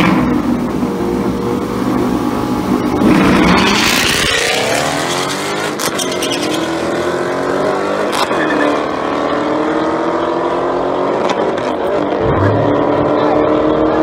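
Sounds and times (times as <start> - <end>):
race car engines accelerating: 0.0 - 14.0.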